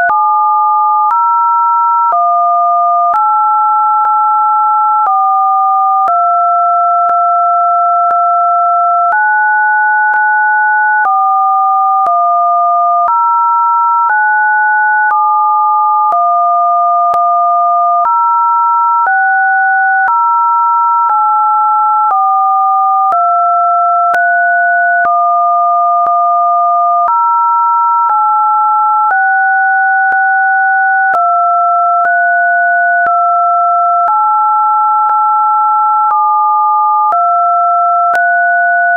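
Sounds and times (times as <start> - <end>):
synthesized sine tones: 0.0 - 1.2, 21.0 - 27.3, 29.1 - 38.9.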